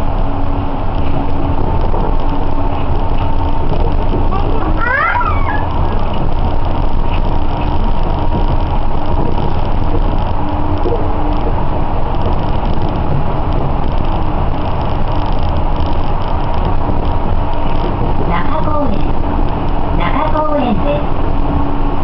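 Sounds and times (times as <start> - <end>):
train tyres rumbling: 0.0 - 22.0.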